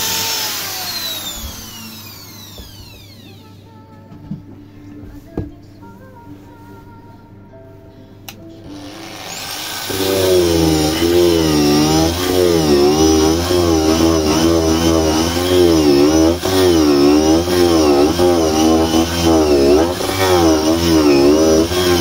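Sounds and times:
rotary tool grinding wood: 0.0 - 3.4, 8.7 - 22.0.

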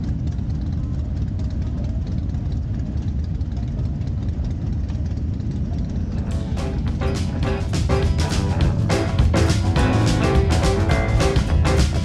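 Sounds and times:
group of motorcycles idling: 0.0 - 12.0
motorcycle engine idling close: 0.0 - 12.0.

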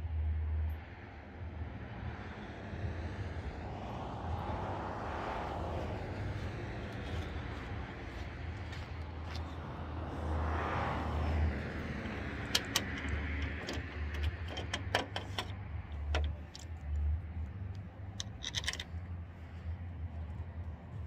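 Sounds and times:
steady low rumble: 0.0 - 21.0
light metallic clicks and rattles: 11.7 - 19.3.

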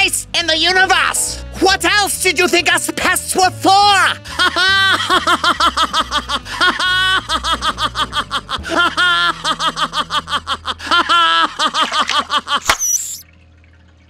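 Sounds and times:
low bass line music: 0.0 - 11.7
high-pitched cartoon cackling: 4.3 - 13.2.

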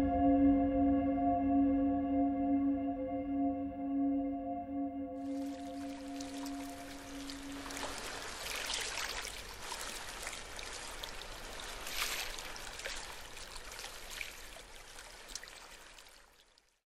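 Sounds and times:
surf washing up a beach: 5.2 - 16.3.

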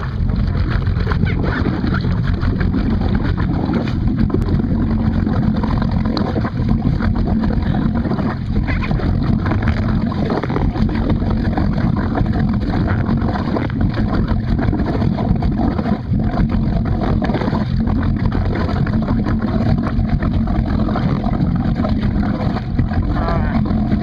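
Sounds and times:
boat motor running: 0.0 - 24.0
water slopping around ski: 0.0 - 24.0.

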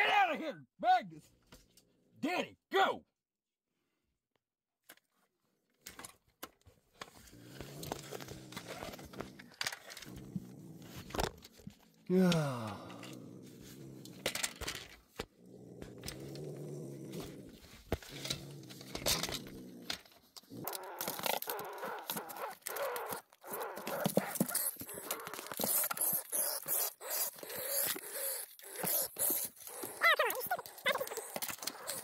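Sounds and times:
opossum growling and hissing: 7.2 - 32.0.

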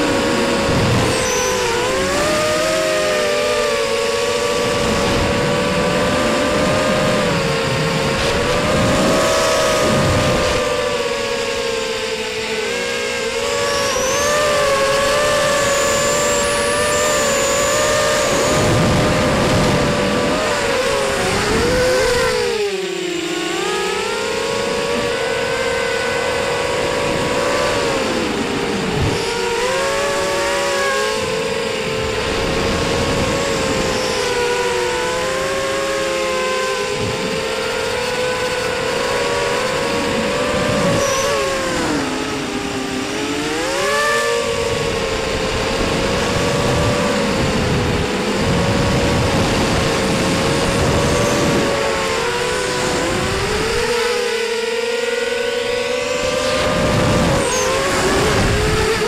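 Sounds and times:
quadcopter motors whining: 0.0 - 59.0
wind rush: 13.6 - 22.7, 44.6 - 54.1, 56.1 - 59.0.

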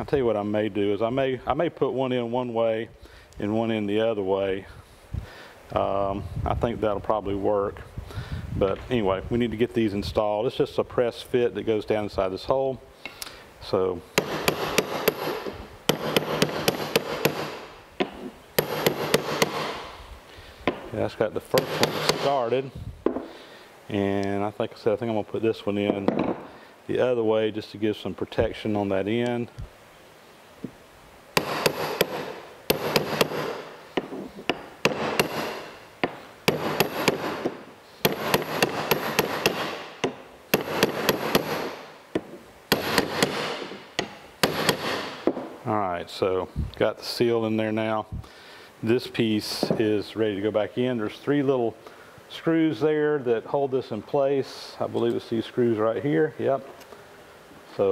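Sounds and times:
hammer tapping metal: 14.2 - 19.8, 31.4 - 45.5.

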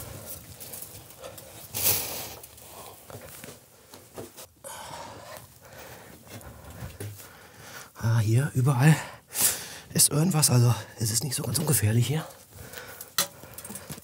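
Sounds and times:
clothing and gear rustling: 0.0 - 4.6
person breathing hard: 4.6 - 8.0, 9.1 - 9.9, 12.4 - 14.0.

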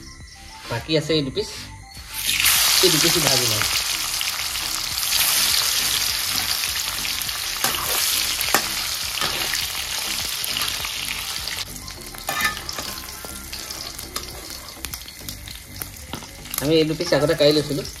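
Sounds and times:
fish sizzling in hot oil: 2.1 - 18.0
metal spatula scraping pan: 7.6 - 10.8, 12.1 - 14.9.

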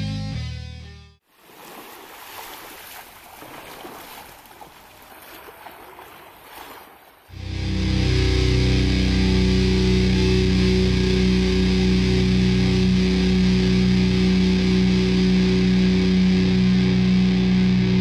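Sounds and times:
sustained chord with low drone: 7.3 - 18.0.

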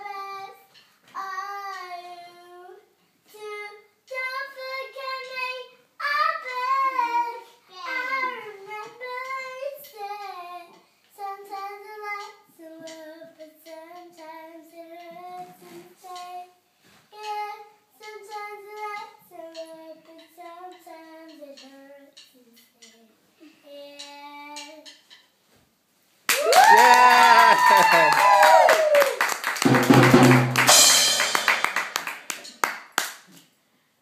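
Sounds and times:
girl singing unaccompanied: 0.0 - 25.2.

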